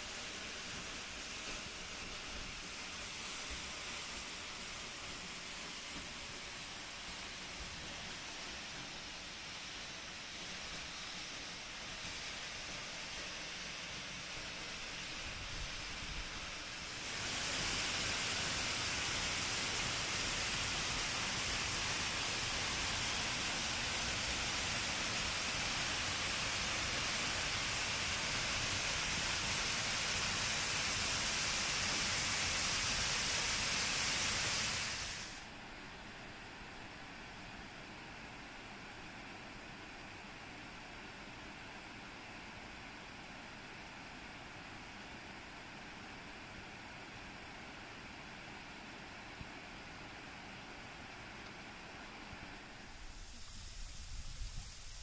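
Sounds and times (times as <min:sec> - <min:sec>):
waterfall rushing hiss: 0:00.0 - 0:35.6, 0:43.2 - 0:55.0.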